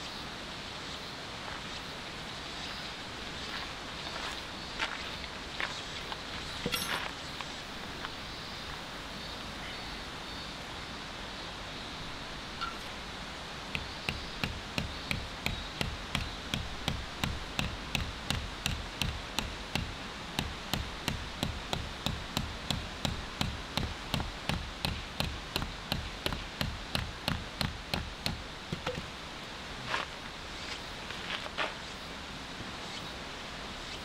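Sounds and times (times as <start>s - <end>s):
hatchet hammering metal peg: 13.8s - 29.0s.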